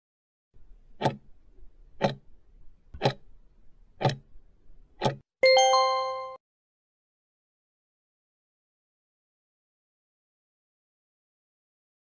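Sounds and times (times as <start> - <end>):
clock ticking: 1.0 - 1.2, 2.0 - 2.2, 3.0 - 3.2, 4.0 - 4.2, 5.0 - 5.2
bright multi-tone chime: 5.4 - 6.4.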